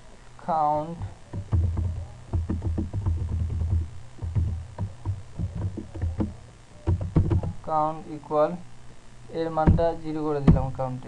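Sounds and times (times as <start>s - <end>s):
computer keyboard typing: 1.0s - 7.6s.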